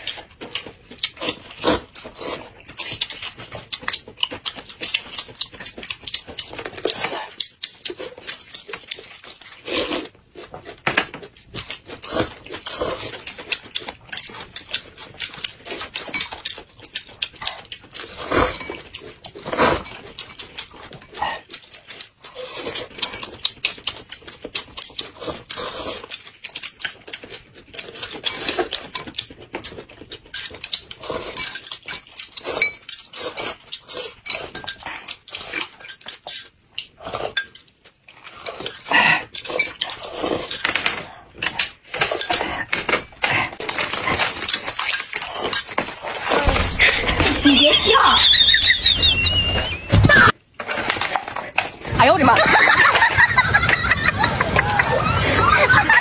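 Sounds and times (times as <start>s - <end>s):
chewing and mouth noises: 0.0s - 50.3s
slurping noodles: 17.2s - 20.0s, 25.0s - 26.6s, 30.8s - 31.6s, 32.2s - 35.8s, 38.1s - 40.6s
utensils clinking on bowl: 26.8s - 36.5s.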